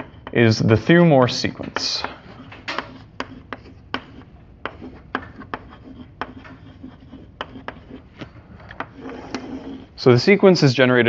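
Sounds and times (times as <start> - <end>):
chalk tapping on chalkboard: 0.0 - 0.5, 1.4 - 9.9
chalk scratching: 0.0 - 10.0.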